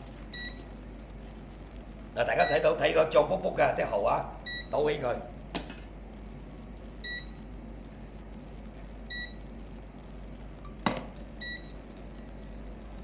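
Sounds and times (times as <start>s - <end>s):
short high cooktop beeps: 10.7s - 13.0s.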